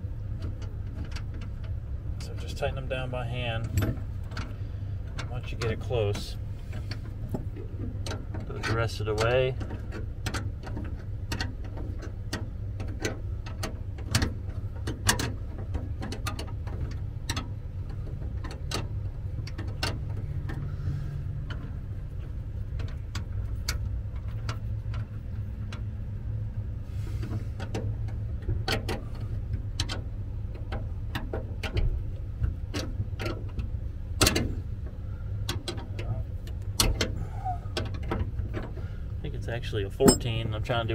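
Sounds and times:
wrenches clicking on metal: 40.0s - 40.9s.

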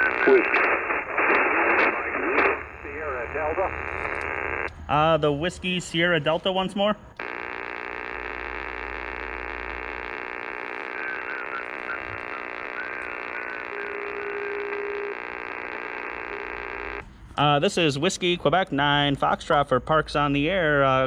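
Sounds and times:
faint garbled radio signal: 0.0s - 4.7s, 7.2s - 17.0s
radio static hiss: 0.0s - 4.7s, 7.2s - 17.0s
steady radio tone: 0.0s - 4.7s, 7.2s - 17.0s.

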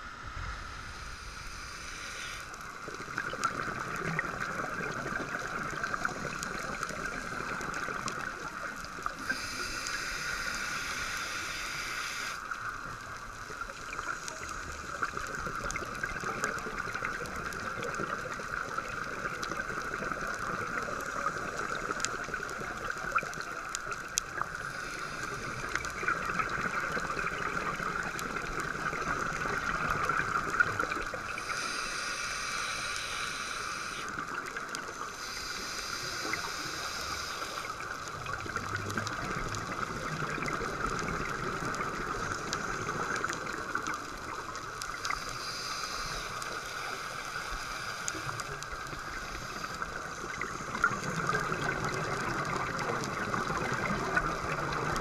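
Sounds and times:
faint crackles: 0.0s - 55.0s
underwater watery hiss: 0.0s - 55.0s
diver regulator breaths: 0.3s - 2.9s, 9.1s - 12.7s, 24.5s - 26.3s, 31.3s - 38.0s, 45.0s - 51.6s.

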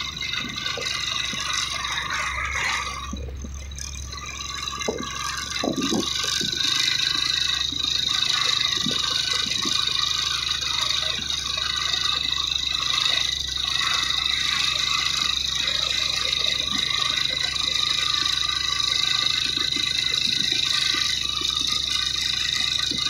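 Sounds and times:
high whine: 0.0s - 23.0s
truck engine labouring uphill: 0.0s - 23.0s.

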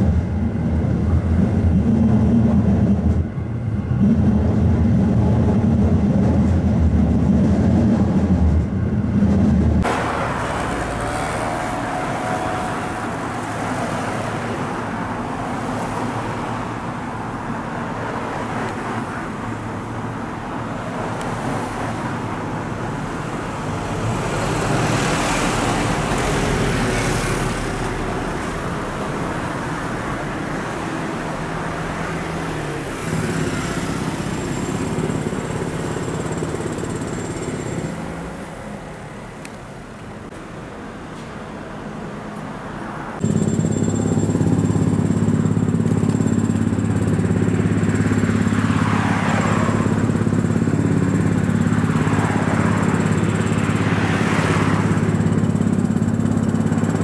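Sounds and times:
train running rumble: 0.0s - 40.4s
cars and trucks passing: 0.0s - 57.0s.

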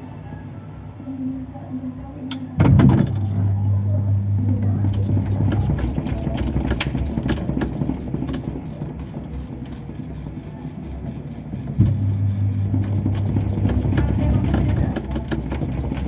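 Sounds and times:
washing machine motor humming: 0.0s - 16.0s
drive coasting with loose rumble: 2.3s - 16.0s
motor starting thump: 2.4s - 16.0s
sharp clicks and rattles: 4.3s - 16.0s.

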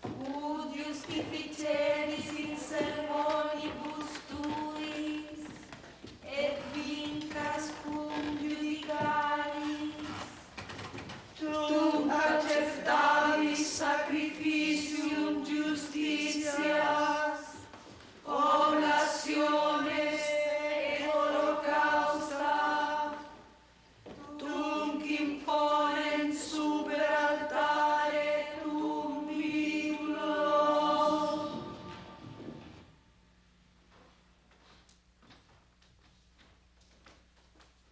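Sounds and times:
choir chanting in unison: 0.7s - 4.1s, 11.4s - 23.4s, 24.3s - 32.4s.

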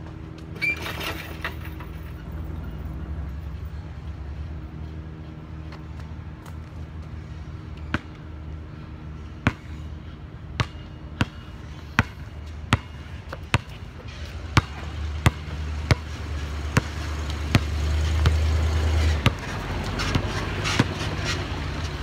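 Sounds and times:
truck engine rumble: 0.0s - 22.0s
basketball bouncing on hard ground: 7.2s - 8.2s, 9.2s - 9.8s, 10.5s - 22.0s.

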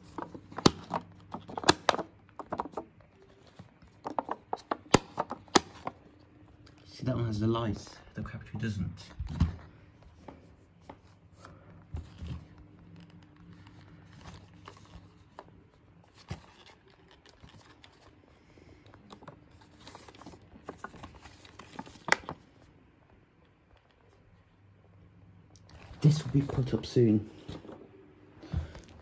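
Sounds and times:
packaging rustling and scraping: 0.0s - 6.1s, 10.9s - 22.7s.

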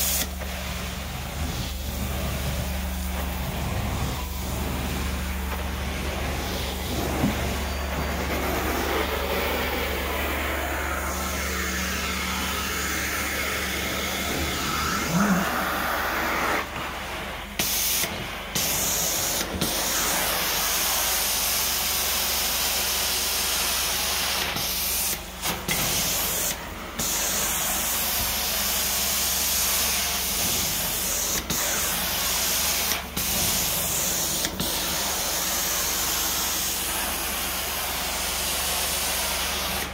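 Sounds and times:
low machine hum: 0.2s - 19.0s.

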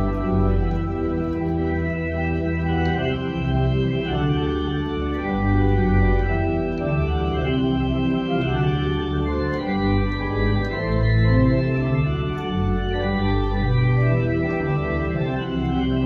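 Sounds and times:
organ playing hymn chords: 0.0s - 16.0s.

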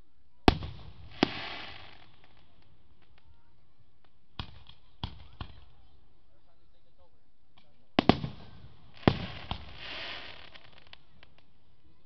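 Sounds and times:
crackling hiss of fireworks: 0.0s - 6.2s, 7.6s - 12.0s
fireworks bangs: 0.4s - 3.3s, 4.3s - 5.7s, 8.0s - 11.6s.

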